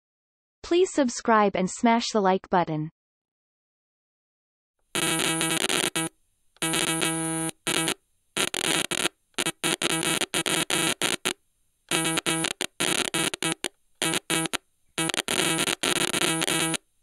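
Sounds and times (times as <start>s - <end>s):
buzzy electronic tone stuttering: 5.0s - 11.3s, 11.9s - 16.8s.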